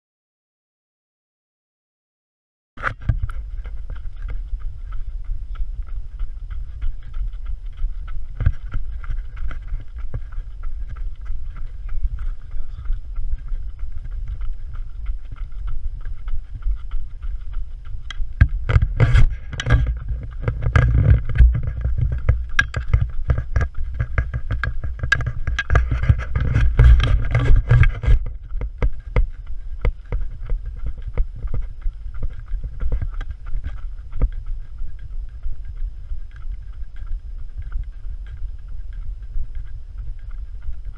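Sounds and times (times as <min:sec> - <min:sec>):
running footfalls: 0:02.8 - 0:40.9
wind buffeting camera microphone: 0:02.8 - 0:40.9.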